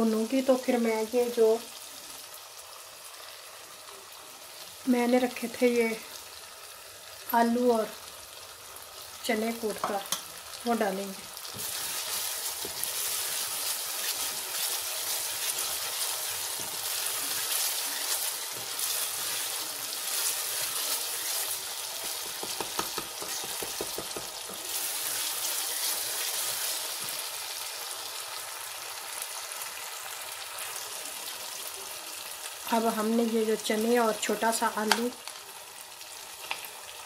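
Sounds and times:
masala sizzling in hot oil: 0.0s - 37.0s
wooden spoon stirring in pot: 11.4s - 27.3s.

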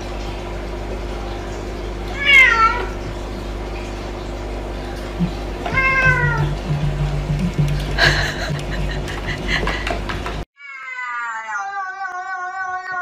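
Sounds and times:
cat meowing: 2.2s - 2.9s, 10.6s - 13.0s.

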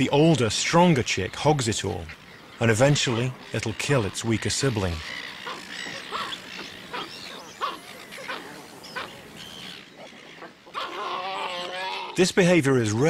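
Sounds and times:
pelican chicks squeaky cries: 2.2s - 12.2s.

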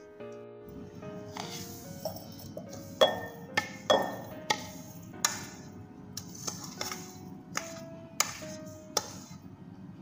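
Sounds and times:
utensil knocking a steel pan: 3.0s - 5.4s.

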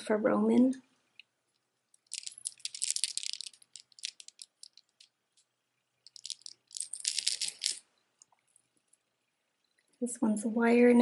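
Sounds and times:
beads clicking and rattling: 1.5s - 9.0s.

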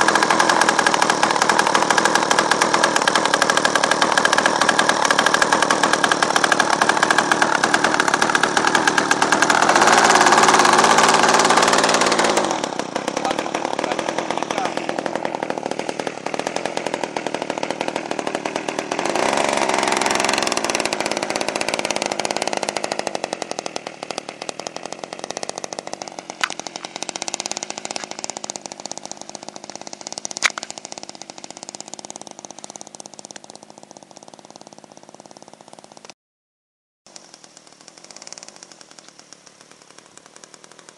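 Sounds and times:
model airplane engine buzzing: 0.0s - 36.2s, 37.1s - 40.9s
sharp clicks: 26.4s - 28.2s, 30.3s - 31.3s, 37.1s - 40.9s.

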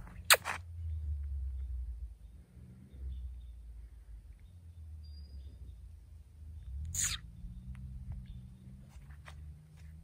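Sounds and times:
faint bird chirps: 0.8s - 8.9s.

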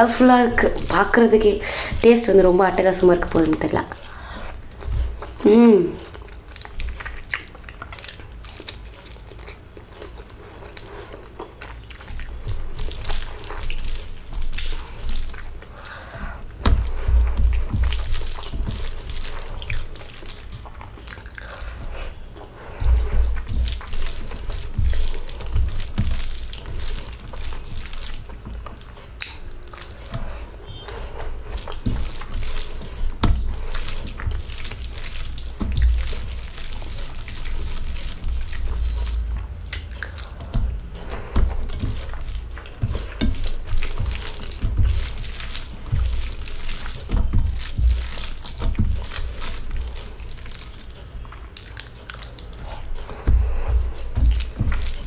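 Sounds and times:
chewing and lip-smacking: 0.3s - 5.4s, 6.0s - 55.0s
fingers squelching rice: 6.3s - 55.0s
dull low thumps: 52.9s - 55.0s.

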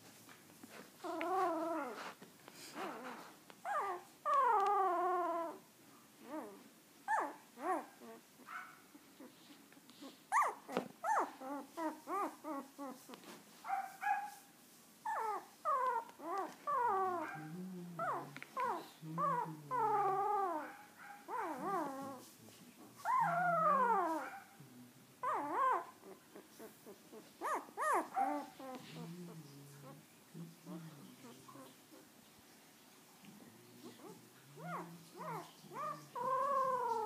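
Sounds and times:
puppy whining and crying: 1.0s - 5.6s, 6.2s - 9.4s, 10.0s - 13.9s, 15.0s - 22.3s, 23.0s - 24.5s, 25.2s - 29.1s, 33.8s - 37.0s.

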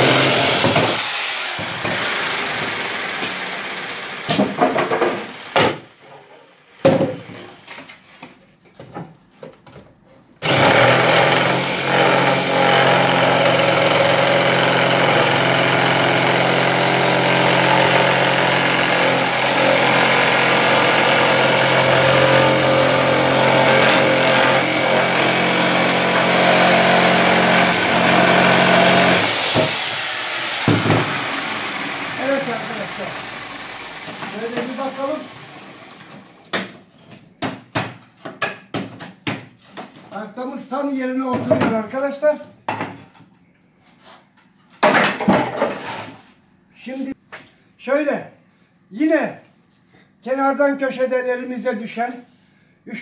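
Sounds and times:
electric jigsaw cutting board: 0.0s - 5.8s, 10.4s - 36.4s.

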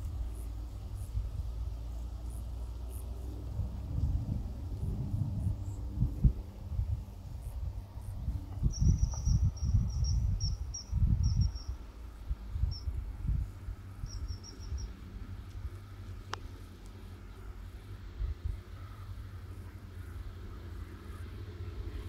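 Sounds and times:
low rumbling microphone buffets: 0.0s - 22.0s
insect chirping: 7.3s - 15.2s.

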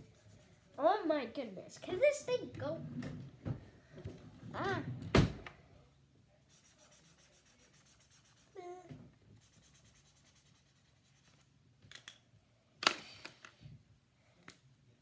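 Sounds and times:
marker scribbling on paper: 0.0s - 1.0s, 6.5s - 8.8s, 9.4s - 11.5s.

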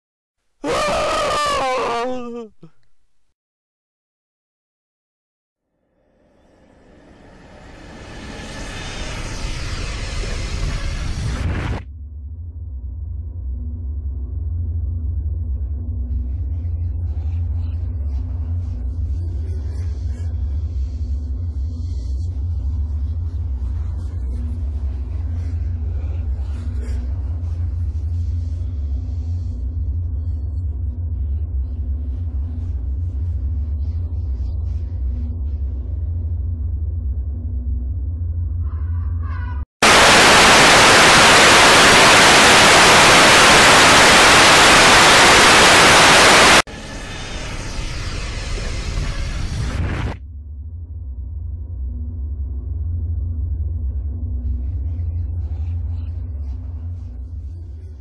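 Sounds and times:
deep low rumble drone: 6.2s - 58.0s
radio static hiss: 39.8s - 46.7s, 48.9s - 50.2s.

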